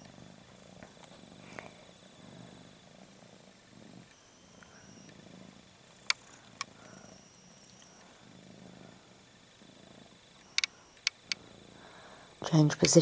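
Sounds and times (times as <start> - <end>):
cat purring softly: 0.0 - 13.0
sharp clicks: 6.0 - 8.1, 10.4 - 11.4, 12.4 - 13.0.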